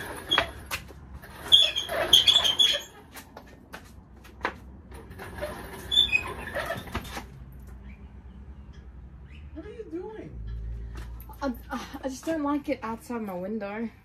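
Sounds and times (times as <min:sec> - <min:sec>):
wheels squeaking: 0:00.0 - 0:03.6, 0:04.9 - 0:08.2.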